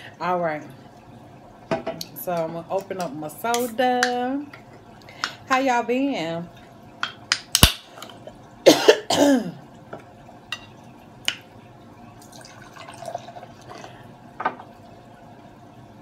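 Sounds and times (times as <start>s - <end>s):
person clearing throat: 8.7s - 9.6s.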